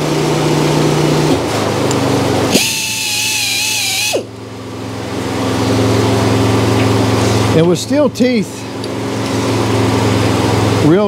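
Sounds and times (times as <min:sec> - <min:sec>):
air compressor droning: 0:00.0 - 0:11.0
air grinder high whine: 0:02.3 - 0:07.8.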